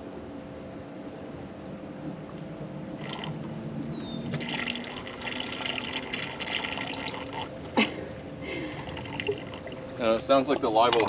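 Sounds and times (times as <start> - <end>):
water draining with sputtering gurgle: 2.3 - 11.0.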